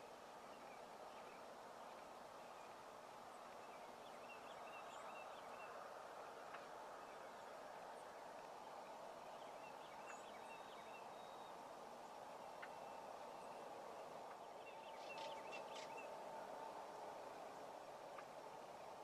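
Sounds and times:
bird chirps: 14.6s - 16.1s.

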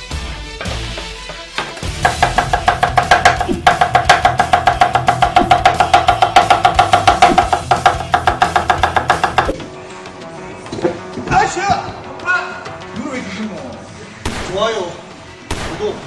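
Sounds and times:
cleaver chopping on wooden board: 0.6s - 9.6s.

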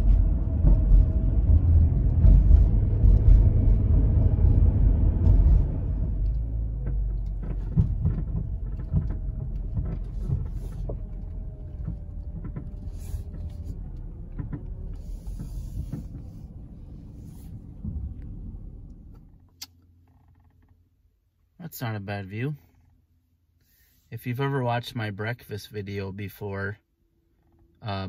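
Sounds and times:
minivan rumbling on gravel: 0.0s - 19.6s.

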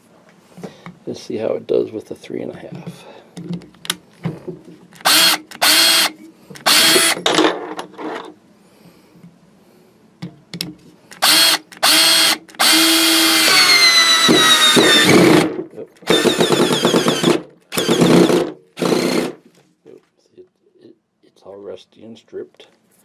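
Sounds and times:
cordless drill motor whine: 5.0s - 7.2s, 11.2s - 15.4s, 16.1s - 19.3s.

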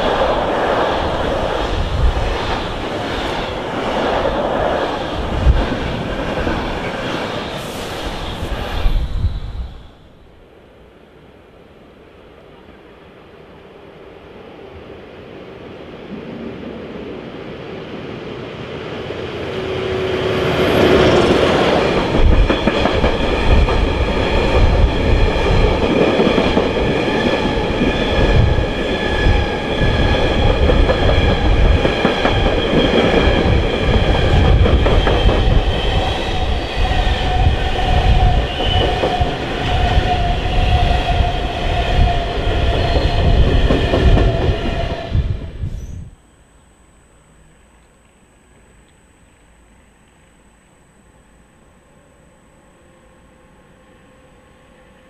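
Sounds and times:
steady high squeal: 0.0s - 10.6s
electric locomotive passing: 0.0s - 55.0s.

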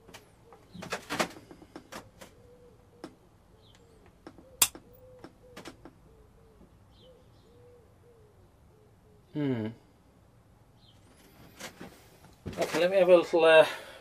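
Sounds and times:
pigeon cooing: 1.6s - 10.0s.

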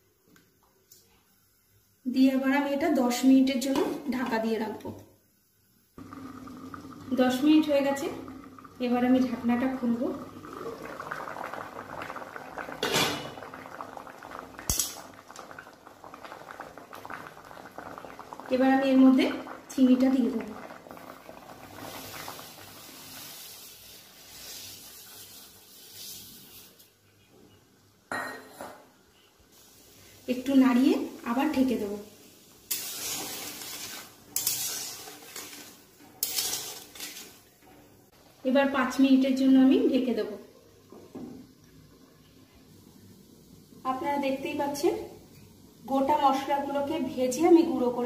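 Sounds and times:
water simmering in a wok: 5.3s - 27.0s, 29.0s - 48.0s
spatula stirring in metal pan: 32.7s - 37.4s.

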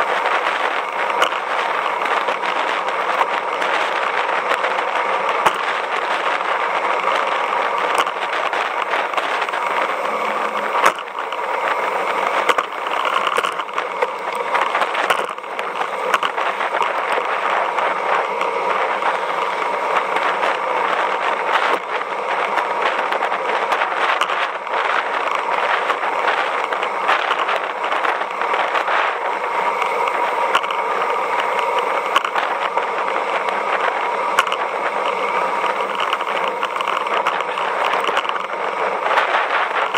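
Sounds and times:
bicycle tyre noise: 0.0s - 39.9s
rushing wind: 0.0s - 39.9s.

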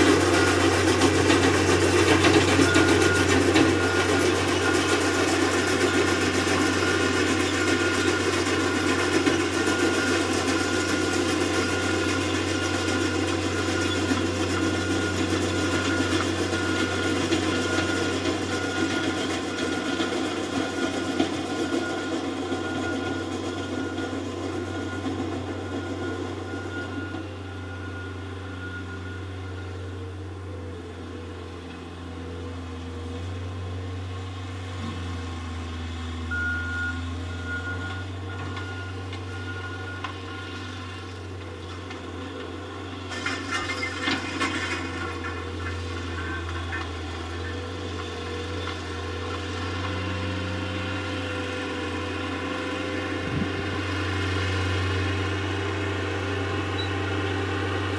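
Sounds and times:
diesel engine running: 0.0s - 57.9s
backup alarm beeping: 2.4s - 29.9s, 36.2s - 40.7s.

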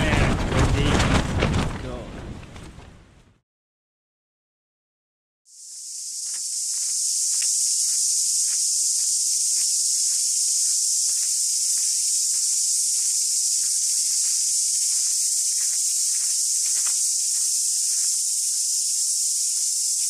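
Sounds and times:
insect chorus buzzing: 5.5s - 20.0s.

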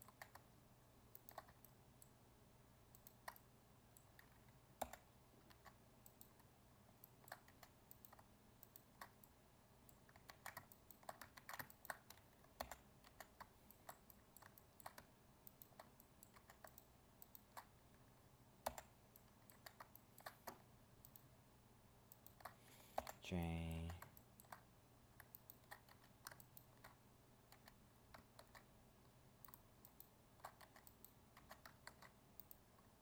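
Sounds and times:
keyboard keys clicking: 0.0s - 0.6s, 1.2s - 2.1s, 2.9s - 17.8s, 25.2s - 28.7s, 29.4s - 32.9s
mouse clicking: 0.0s - 2.2s, 2.9s - 21.4s, 22.0s - 23.2s, 23.8s - 33.0s.

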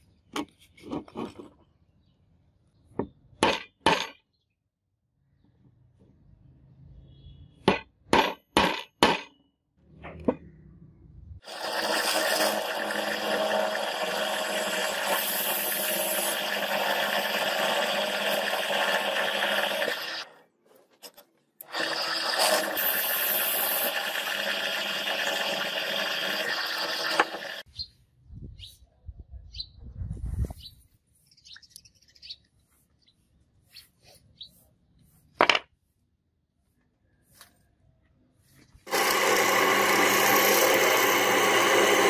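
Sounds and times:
drill press boring into steel: 11.4s - 20.3s, 21.6s - 27.6s, 38.9s - 42.0s.

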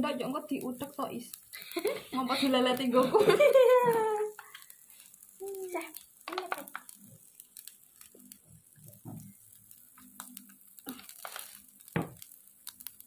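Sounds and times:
faint small clicks and taps: 4.3s - 13.0s.

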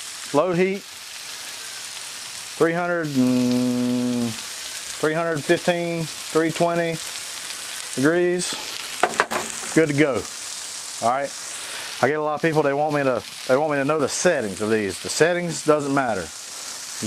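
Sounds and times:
fish sizzling in oil: 0.0s - 17.0s
man making wordless sounds: 2.6s - 4.4s.

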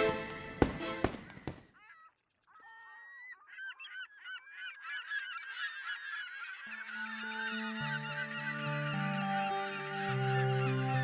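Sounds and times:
music intro: 0.0s - 1.2s
low steady music tones: 0.0s - 1.6s
gulls calling: 0.0s - 10.9s.

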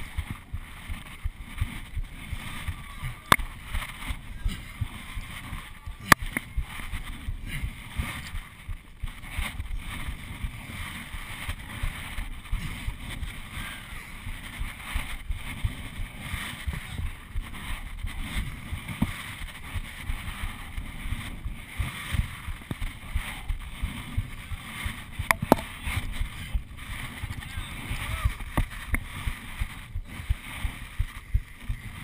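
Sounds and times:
wind rumble on microphone: 0.0s - 32.0s.

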